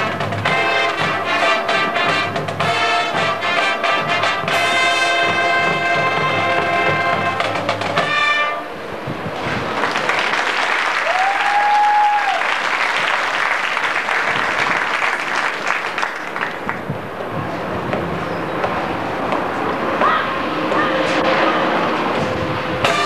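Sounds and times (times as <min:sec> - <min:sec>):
marching band brass chord: 0:00.0 - 0:09.8, 0:20.4 - 0:23.0
crowd applauding and cheering: 0:09.6 - 0:16.9.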